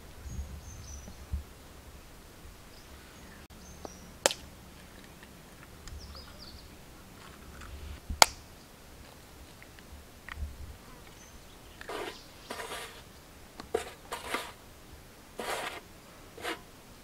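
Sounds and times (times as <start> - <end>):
faint bird chirps: 0.2 - 1.4, 5.9 - 8.0.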